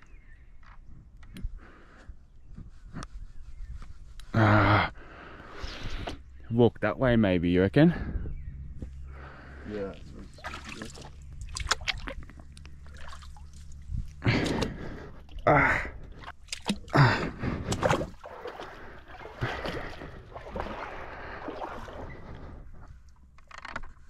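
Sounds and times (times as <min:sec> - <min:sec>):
feet wading through water: 0:09.0 - 0:23.3.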